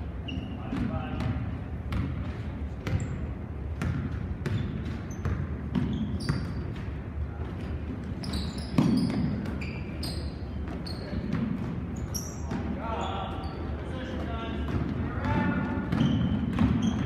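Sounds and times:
sneakers squeaking: 0.0 - 17.0
basketball bouncing on wooden floor: 0.7 - 7.1, 8.2 - 10.0, 10.6 - 12.8, 14.6 - 17.0.

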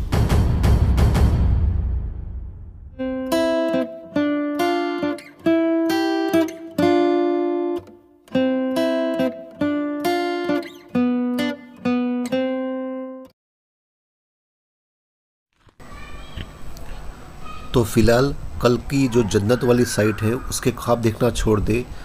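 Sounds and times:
acoustic guitar picking chords: 3.0 - 13.3.

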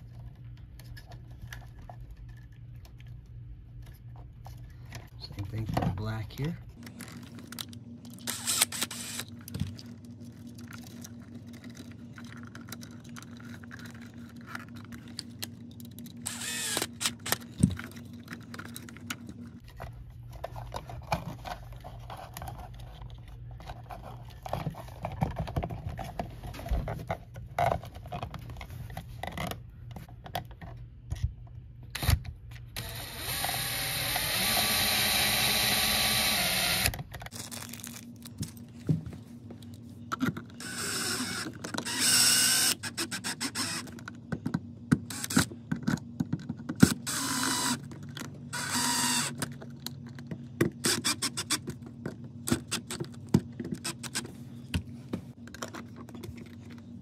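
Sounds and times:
cordless drill running: 8.3 - 9.3, 16.3 - 17.4, 32.8 - 37.0, 40.6 - 43.9, 45.1 - 45.4, 47.0 - 47.8, 48.5 - 49.4.

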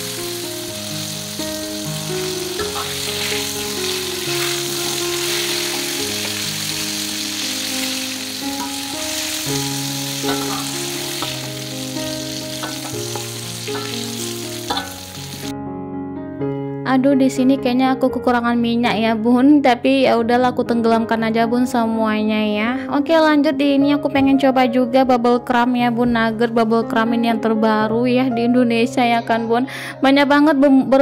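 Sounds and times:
shrimp sizzling in hot oil: 0.0 - 15.5
soft background music: 0.0 - 31.0
metal spatula clinking on pan: 10.3 - 11.4, 14.7 - 15.0.

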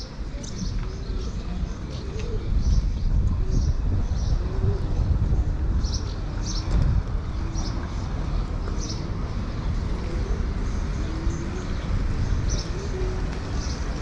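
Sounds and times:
distant traffic rumble: 0.0 - 14.0
small birds chirping: 7.5 - 14.0.

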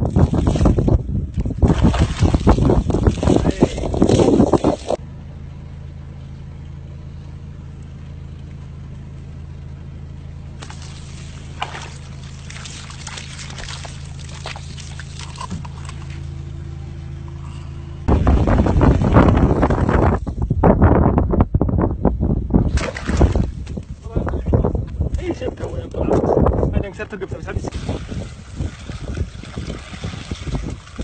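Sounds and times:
vehicle engine idling: 4.7 - 22.6
water pouring: 10.6 - 16.0, 27.7 - 31.0.

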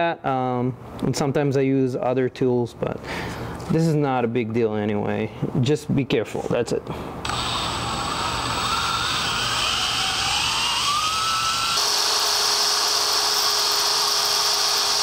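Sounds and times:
drill boring through metal: 7.2 - 15.0.

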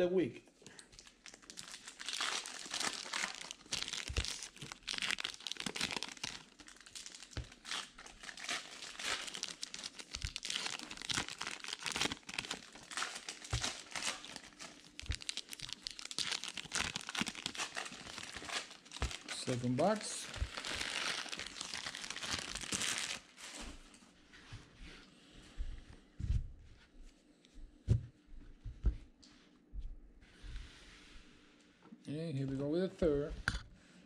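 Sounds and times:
plastic wrappers crinkling and tearing: 0.6 - 24.0.

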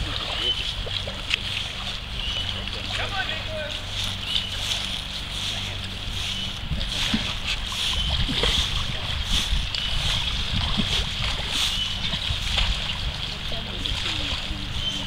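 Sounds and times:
water splashing and sloshing: 0.0 - 15.0.

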